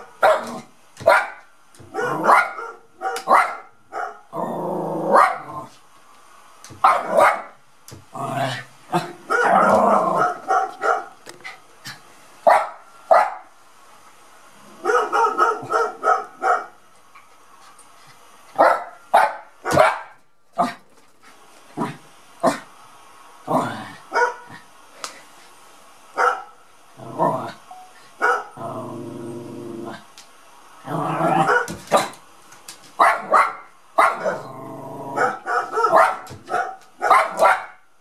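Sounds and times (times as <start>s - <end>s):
small dog barking: 0.0s - 4.3s, 5.1s - 5.6s, 6.8s - 7.6s, 9.0s - 11.2s, 12.4s - 13.5s, 14.8s - 16.8s, 18.6s - 20.8s, 24.1s - 24.6s, 26.2s - 26.6s, 28.2s - 28.6s, 31.3s - 32.2s, 33.0s - 34.5s, 35.1s - 37.8s.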